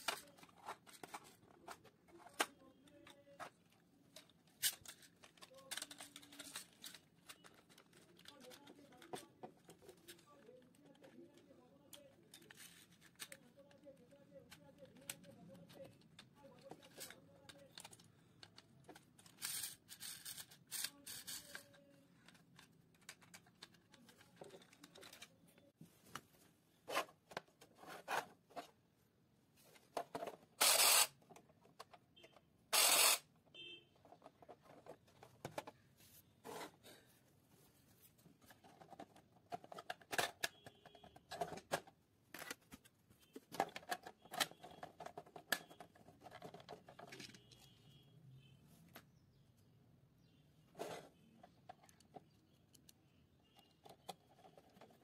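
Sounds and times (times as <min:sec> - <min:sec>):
plastic toy clicking: 0:04.3 - 0:09.0.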